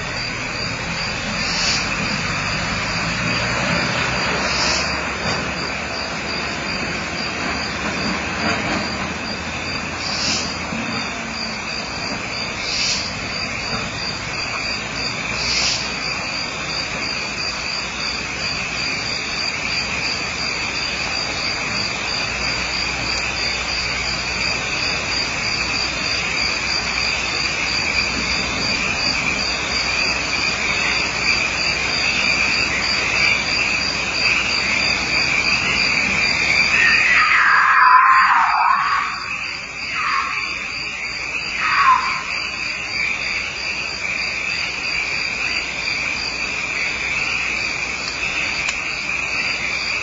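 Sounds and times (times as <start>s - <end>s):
constant hiss: 0.0s - 37.4s
crickets chirping: 0.0s - 50.0s.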